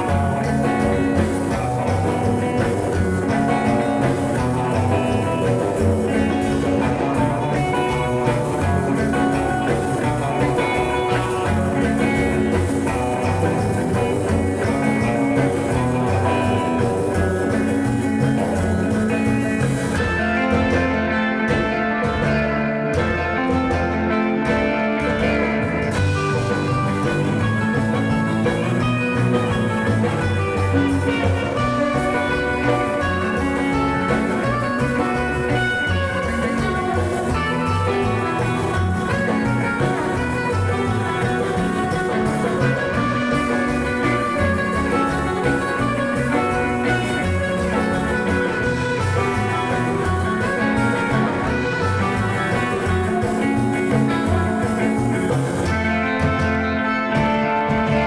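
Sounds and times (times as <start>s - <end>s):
live band playing: 0.0s - 58.0s.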